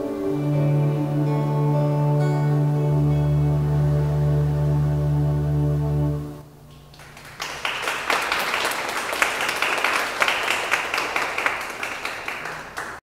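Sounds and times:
audience applause: 0:06.9 - 0:13.0.

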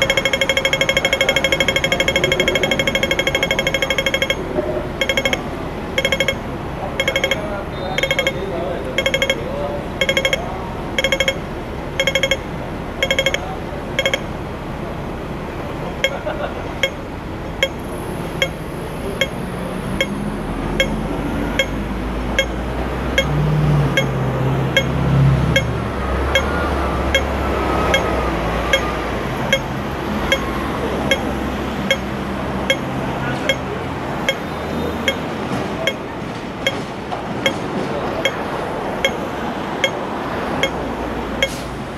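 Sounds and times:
pedestrian crossing signal ticking: 0:00.0 - 0:14.4, 0:16.0 - 0:41.9
tram motor hum: 0:00.0 - 0:41.9.

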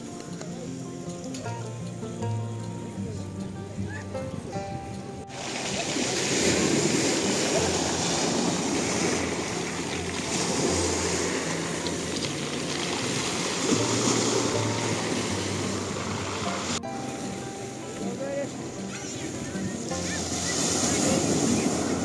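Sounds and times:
waves washing over pebbles: 0:05.3 - 0:22.0.

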